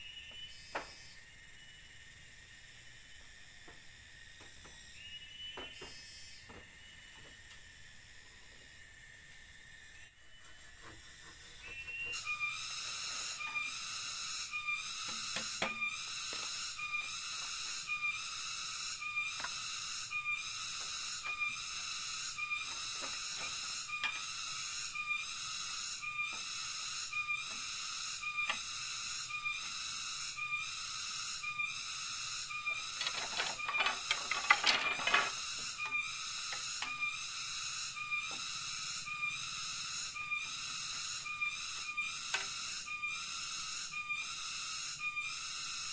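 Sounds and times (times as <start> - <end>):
cicadas pulsing call: 0.0 - 45.9.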